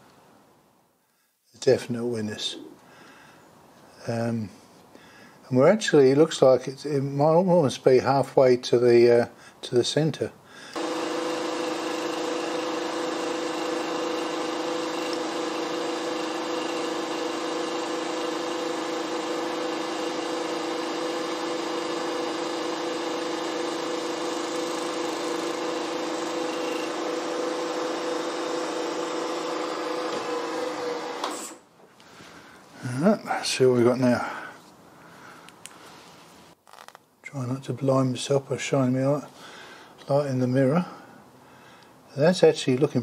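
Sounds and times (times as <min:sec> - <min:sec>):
milling machine whine: 0:10.8 - 0:31.6.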